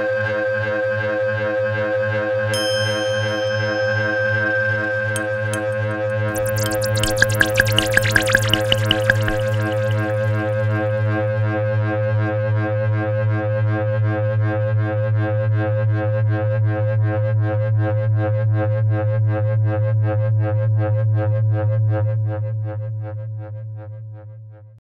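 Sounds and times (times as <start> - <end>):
pulsing electronic drone music: 5.6 - 10.6.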